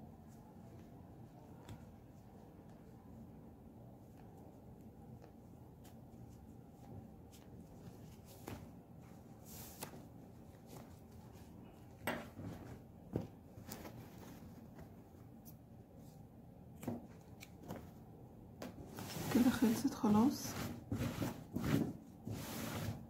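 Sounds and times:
crochet hook and yarn rustling: 18.7s - 23.0s.

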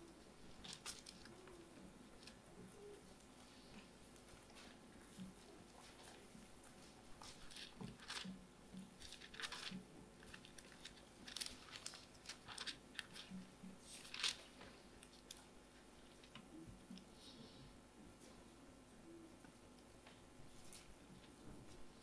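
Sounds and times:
thin pages turning: 0.5s - 1.6s, 6.8s - 15.4s.

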